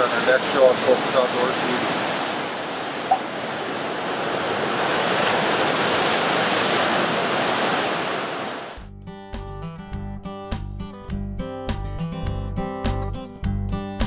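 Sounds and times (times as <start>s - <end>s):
waves breaking on shoreline: 0.0s - 8.8s
strummed acoustic guitar music: 9.0s - 14.0s.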